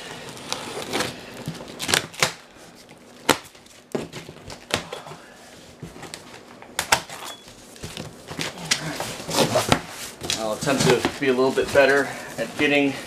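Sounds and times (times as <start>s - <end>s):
packing tape ripping: 0.0s - 2.4s.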